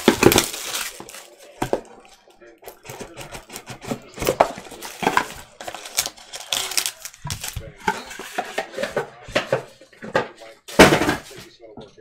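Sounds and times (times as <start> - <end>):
plastic wrap crackling: 0.0 - 7.8.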